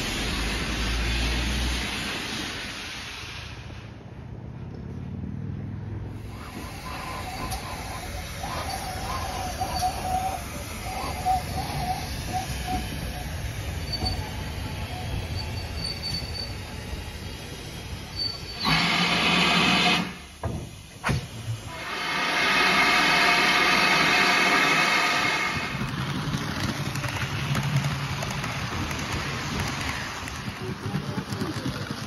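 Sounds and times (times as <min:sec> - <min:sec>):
steam hissing: 0:00.0 - 0:04.0, 0:06.1 - 0:32.0
steam locomotive rumbling: 0:00.0 - 0:32.0
faint wavering squeals: 0:06.2 - 0:17.2, 0:18.0 - 0:18.7.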